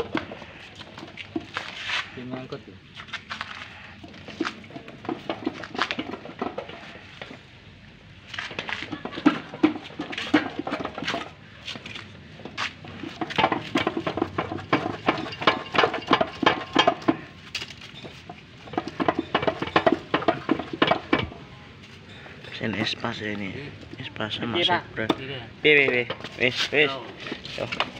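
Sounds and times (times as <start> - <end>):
hand tools clicking on metal: 8.3 - 21.4.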